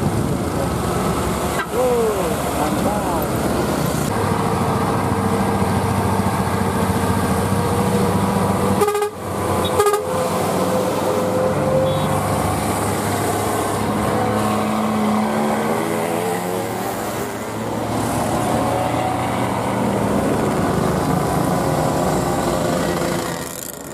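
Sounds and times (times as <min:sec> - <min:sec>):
engine whine: 0:00.0 - 0:23.9
truck engines labouring uphill: 0:00.0 - 0:23.9
vehicle horn toot: 0:08.8 - 0:10.2, 0:11.8 - 0:12.2.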